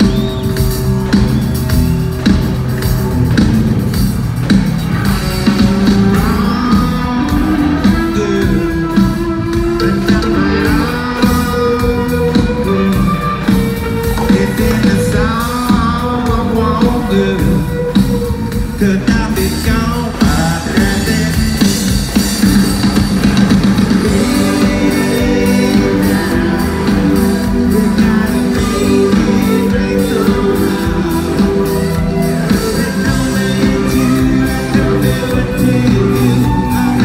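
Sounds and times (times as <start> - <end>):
live rock band playing: 0.0 - 37.0
person singing: 5.0 - 22.0, 23.9 - 37.0.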